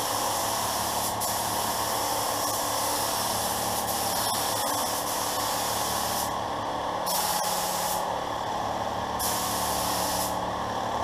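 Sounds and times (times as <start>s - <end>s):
spray gun hissing: 0.0s - 6.3s, 7.1s - 8.1s, 9.2s - 10.4s.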